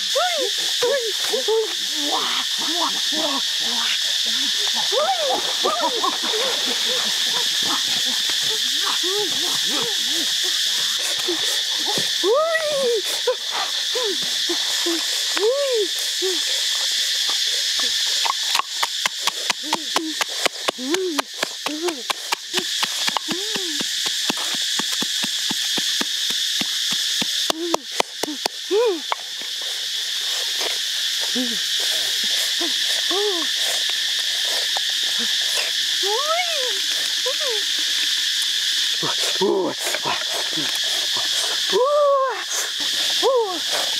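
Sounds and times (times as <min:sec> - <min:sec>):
high insect drone: 0:00.0 - 0:43.9.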